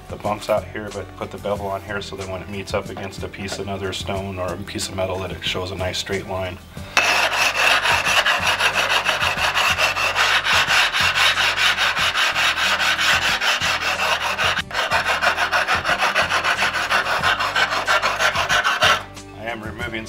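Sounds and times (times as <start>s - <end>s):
rubbing stone rasping on tile: 7.0s - 19.1s.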